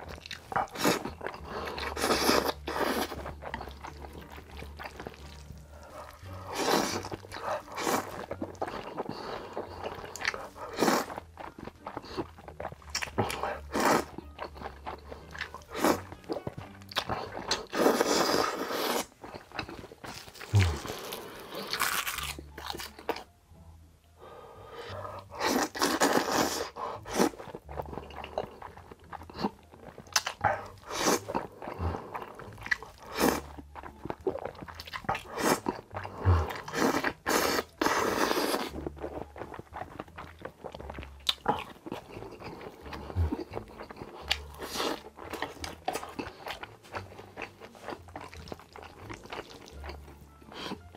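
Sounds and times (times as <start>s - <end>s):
person chewing: 0.0s - 23.3s, 24.7s - 50.9s
soft background music: 0.0s - 50.9s
person slurping noodles: 0.6s - 11.2s, 13.2s - 14.1s, 17.1s - 19.2s, 20.3s - 21.8s, 25.0s - 27.5s, 30.4s - 33.5s, 35.2s - 38.9s, 42.2s - 46.6s
wet mouth clicks: 29.6s - 30.6s.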